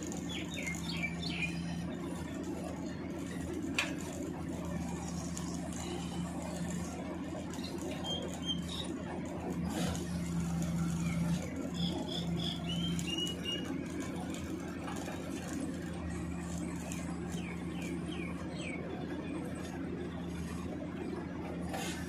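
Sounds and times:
hydraulic machine humming: 0.0s - 22.0s
birds chirping: 0.1s - 1.9s, 11.0s - 13.7s.

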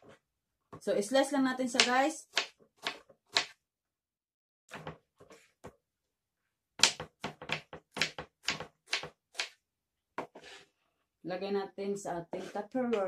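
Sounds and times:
knife chopping on wooden board: 1.8s - 3.6s, 6.8s - 9.6s.

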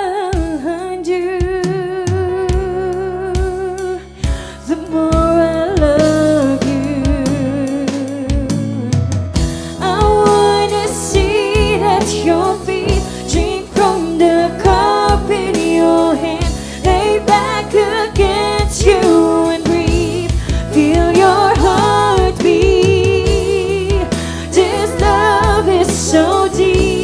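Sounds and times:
drum kit: 0.1s - 27.0s
person singing gospel: 9.8s - 27.0s.

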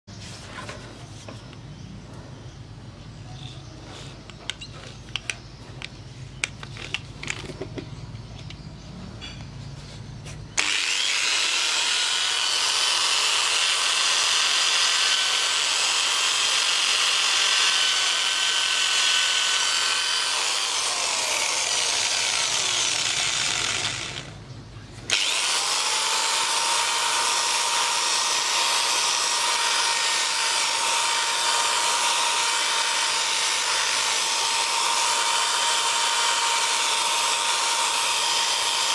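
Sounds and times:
electric drill with wire brush whining: 10.6s - 24.4s, 25.1s - 38.9s.

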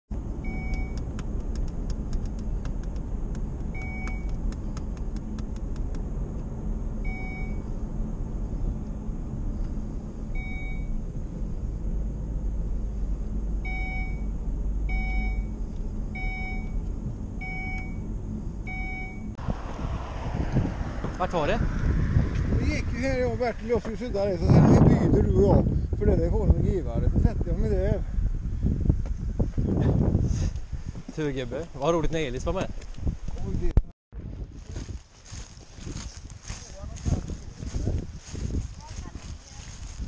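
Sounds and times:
car road and engine rumble: 0.1s - 40.0s
electronic chime beeping: 14.9s - 15.5s.

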